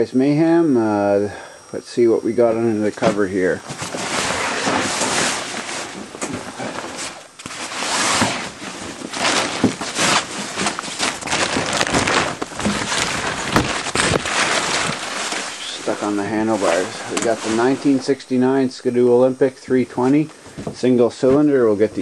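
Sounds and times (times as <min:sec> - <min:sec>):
plastic tarp rustling: 0:03.6 - 0:19.0.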